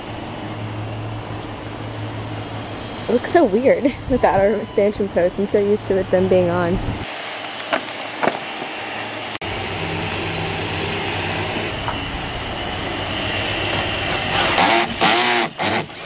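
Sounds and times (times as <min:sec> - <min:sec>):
cordless drill boring: 0:14.0 - 0:16.0.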